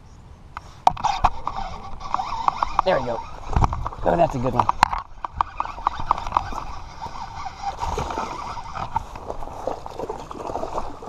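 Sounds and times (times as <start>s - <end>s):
fishing reel clicking: 1.0s - 9.0s.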